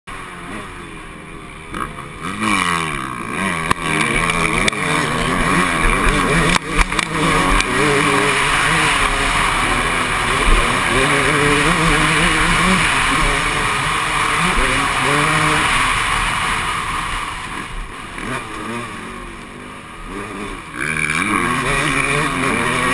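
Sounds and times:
dirt bike engine revving: 0.1s - 22.9s.

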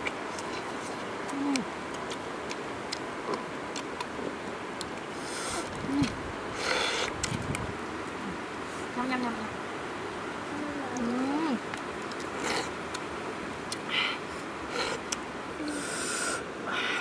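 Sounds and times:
steady outdoor hiss: 0.0s - 17.0s
person humming mmm: 1.3s - 1.7s, 14.7s - 17.0s.

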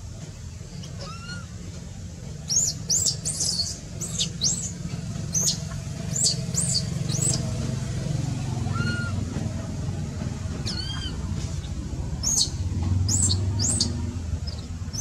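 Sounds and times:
steady low hum: 0.0s - 15.0s
soft arched monkey call: 0.7s - 1.7s, 2.4s - 7.5s, 8.5s - 9.4s, 10.5s - 15.0s
baby monkey squeaking: 0.8s - 1.6s, 2.4s - 7.5s, 8.7s - 9.2s, 10.6s - 11.2s, 12.2s - 15.0s.

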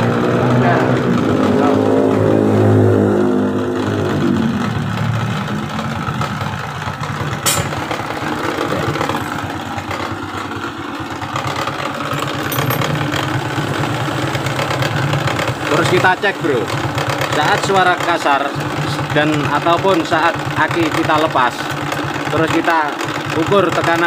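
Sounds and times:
motorcycle engine idling rough: 3.4s - 24.0s
sharp click: 7.4s - 7.9s.

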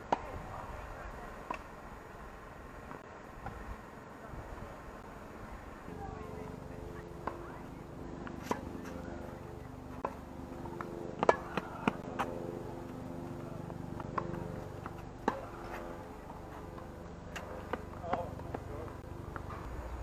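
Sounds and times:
tennis ball hitting racket: 6.9s - 19.6s.

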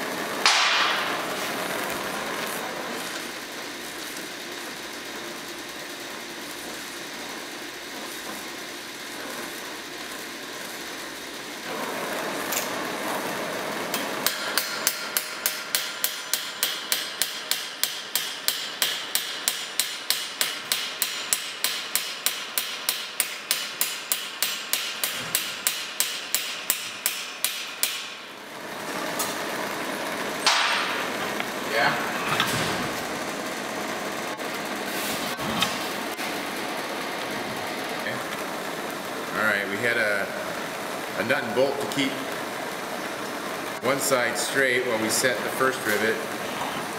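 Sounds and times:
gas torch hissing: 0.0s - 46.9s
hammer striking hot rivet: 0.4s - 1.2s, 13.9s - 28.2s, 30.4s - 31.0s.

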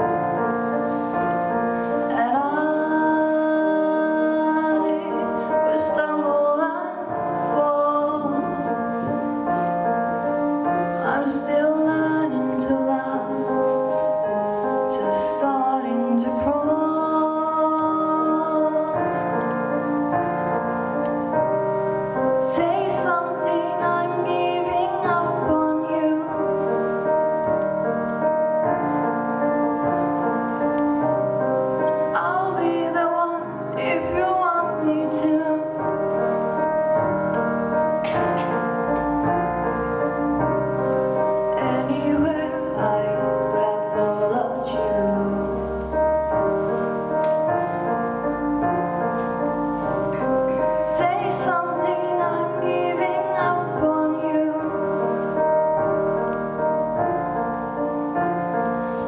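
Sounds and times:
sustained piano chords: 0.0s - 59.0s
woman singing slow song: 2.1s - 8.8s, 11.0s - 13.6s, 14.9s - 19.4s, 22.4s - 26.7s, 32.1s - 35.9s, 41.5s - 45.8s, 50.8s - 55.1s.

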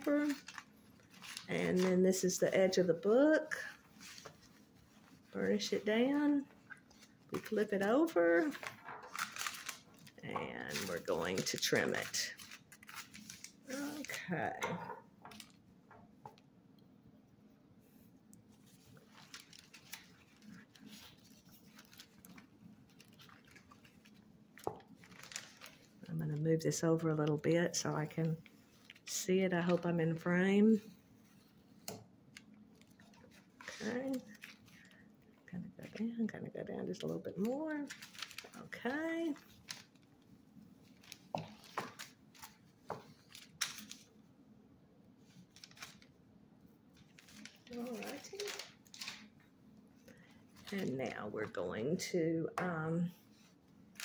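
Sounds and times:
paper rustling and clicking: 0.0s - 2.8s, 3.6s - 14.3s, 15.2s - 15.6s, 18.7s - 26.4s, 31.8s - 35.0s, 37.3s - 44.1s, 45.3s - 46.1s, 46.9s - 49.4s.

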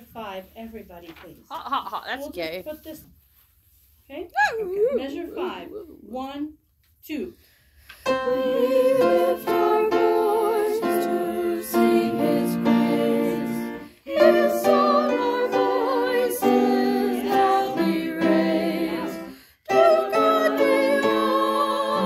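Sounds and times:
choir singing a hymn: 8.1s - 22.0s.

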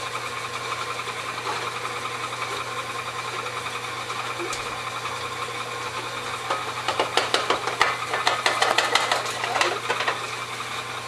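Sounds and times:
stand mixer motor running: 0.0s - 11.0s.

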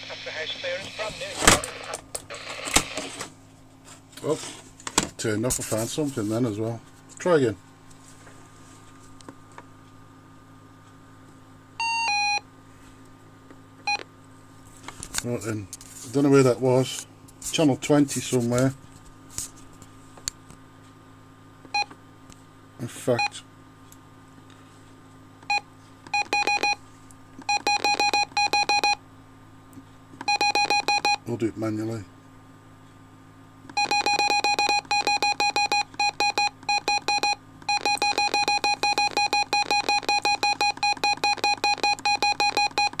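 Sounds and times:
low steady radio hum: 0.0s - 3.2s
keypad key beeps: 25.4s - 26.8s, 27.5s - 29.0s, 30.2s - 31.2s, 33.7s - 43.0s.

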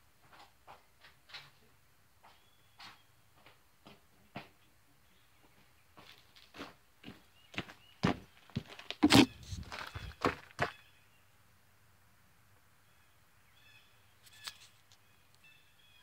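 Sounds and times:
phone handling knocks and rubbing: 9.0s - 9.6s.

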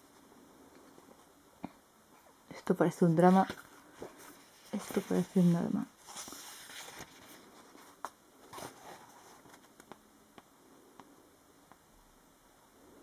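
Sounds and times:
paper pages rustling: 3.2s - 10.0s.

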